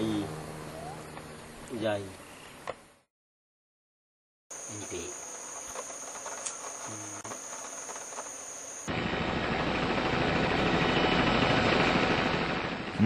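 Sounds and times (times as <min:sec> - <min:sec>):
insects chirring: 0:00.0 - 0:02.7, 0:04.5 - 0:09.0
helicopter rotor and engine: 0:04.6 - 0:13.0.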